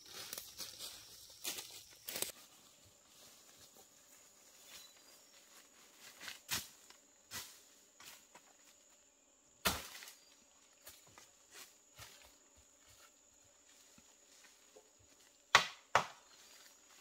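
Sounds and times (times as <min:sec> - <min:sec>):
footsteps crunching on dry leaves: 0:00.0 - 0:08.5
undergrowth rustling: 0:00.0 - 0:08.8.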